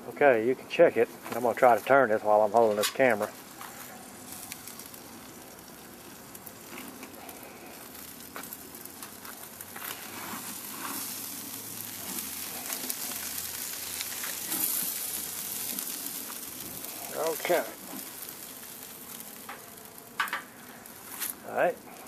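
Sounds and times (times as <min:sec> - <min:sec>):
meat sizzling on a grill: 0:00.0 - 0:22.0
light knocks on a grill grate: 0:20.2 - 0:20.5.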